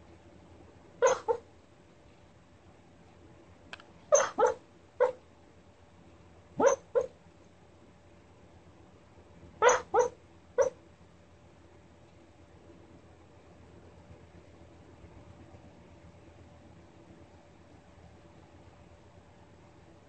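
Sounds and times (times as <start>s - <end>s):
dog barking in sleep: 1.0s - 1.5s, 4.1s - 5.2s, 6.6s - 7.2s, 9.6s - 10.8s.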